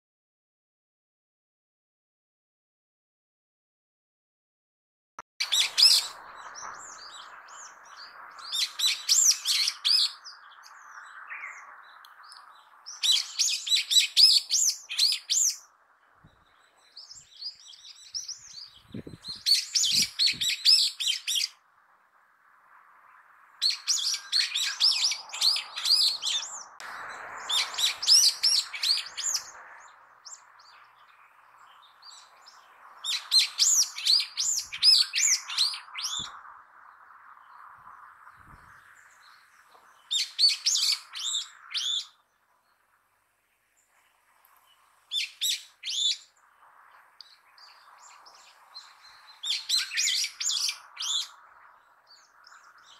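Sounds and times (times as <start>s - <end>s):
bird shrill calls: 5.4s - 15.6s, 16.9s - 21.6s, 23.6s - 30.9s, 33.0s - 36.3s, 40.1s - 42.2s, 45.1s - 46.3s, 47.3s - 51.4s.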